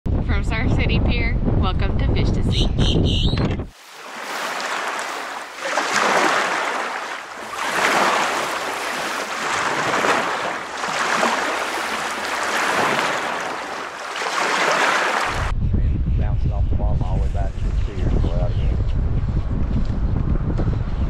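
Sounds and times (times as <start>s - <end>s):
ocean waves washing in: 3.7s - 15.5s.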